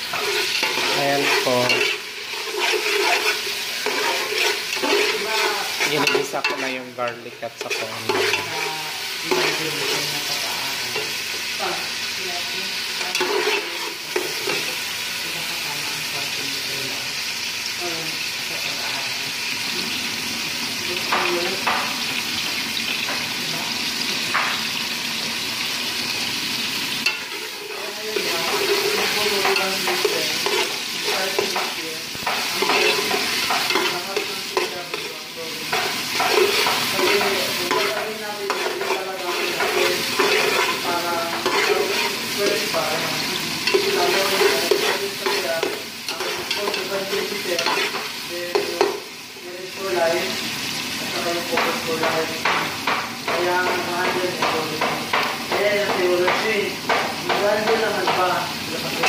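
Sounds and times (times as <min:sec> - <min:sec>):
spoon scraping a pot: 0:00.0 - 0:06.8, 0:07.6 - 0:10.1, 0:27.0 - 0:35.1, 0:35.7 - 0:42.4, 0:43.3 - 0:48.2
garlic sizzling in hot oil: 0:00.0 - 0:59.0.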